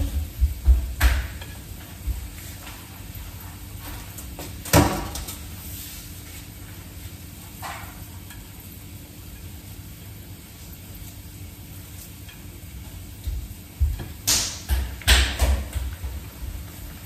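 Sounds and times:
food sizzling in oil: 0:00.0 - 0:17.0
knock on kitchen counter: 0:00.1 - 0:01.4.

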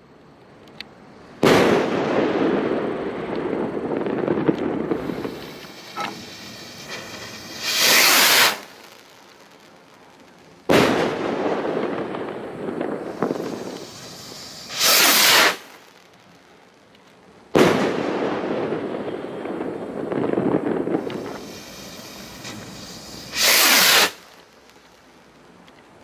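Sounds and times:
firework bang: 0:01.4 - 0:08.9, 0:10.7 - 0:15.8, 0:17.5 - 0:24.5
firework rocket whoosh: 0:01.4 - 0:09.7, 0:10.6 - 0:16.0, 0:17.6 - 0:25.0.

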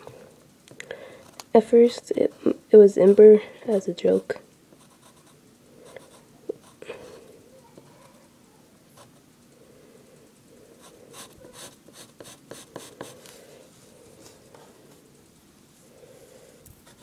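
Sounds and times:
pencil scratching on paper: 0:04.8 - 0:06.8, 0:10.8 - 0:13.2.

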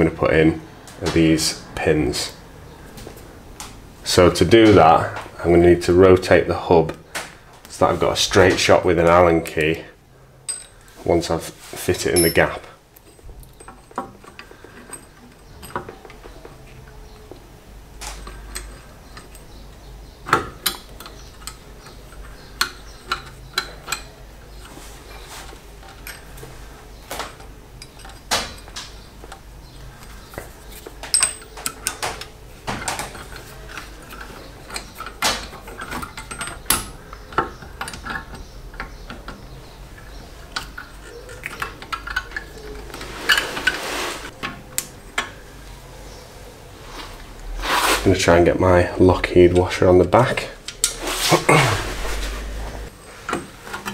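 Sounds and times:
metal clinks and taps: 0:10.5 - 0:10.8, 0:12.2 - 0:16.6, 0:31.0 - 0:32.0.

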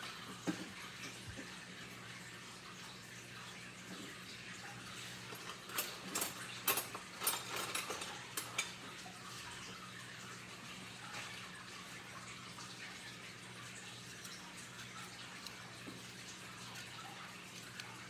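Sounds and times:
dishes clinking and clattering: 0:00.0 - 0:01.5, 0:05.2 - 0:09.1.

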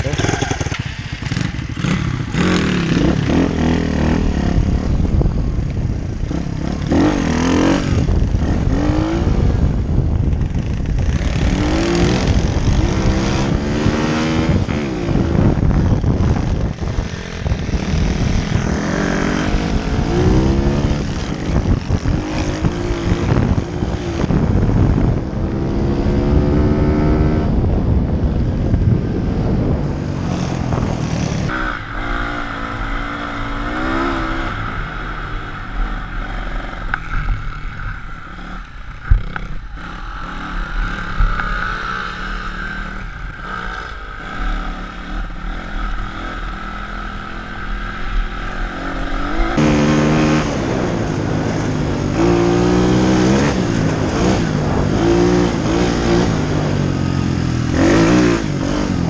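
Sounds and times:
small motorbike engine revving: 0:00.0 - 0:05.0, 0:30.2 - 0:59.0
wind rush: 0:00.0 - 0:59.0.

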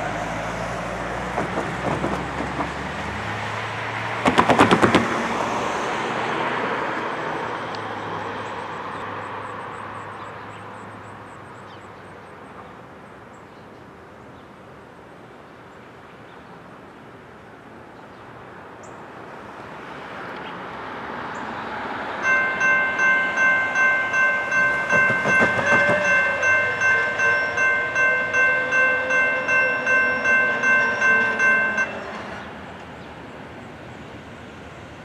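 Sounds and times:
car passing: 0:00.0 - 0:11.4, 0:19.0 - 0:35.0
rapid rattling knocks: 0:04.2 - 0:05.2, 0:22.3 - 0:27.0.

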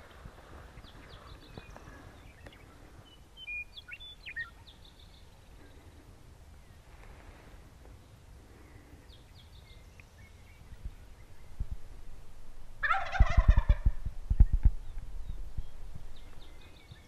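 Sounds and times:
small bird chirping: 0:00.8 - 0:05.5
turkey gobbling: 0:12.8 - 0:13.9
low thumps near microphone: 0:13.3 - 0:16.5.

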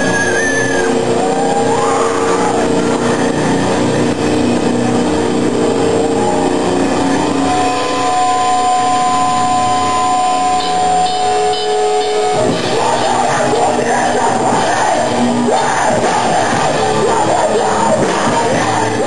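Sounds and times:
heavy rock band playing: 0:00.0 - 0:19.0
held high tones ringing: 0:07.3 - 0:13.1.

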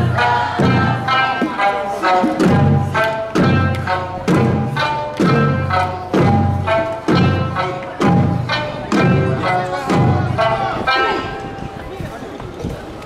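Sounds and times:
hand drums struck: 0:02.2 - 0:10.4.

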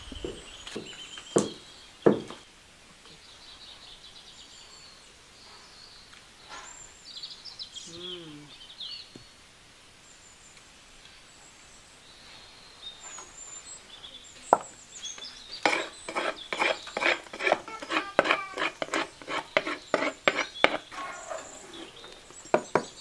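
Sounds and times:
faint bird chirps: 0:00.0 - 0:09.4, 0:10.0 - 0:23.0
pounding in a wooden mortar: 0:00.2 - 0:02.4, 0:15.6 - 0:20.9, 0:22.5 - 0:23.0.

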